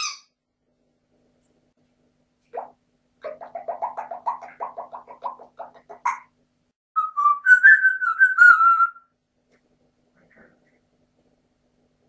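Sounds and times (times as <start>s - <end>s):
parrot calling: 2.6s - 6.3s, 7.0s - 9.0s
parrot wavering whistle: 7.0s - 9.1s.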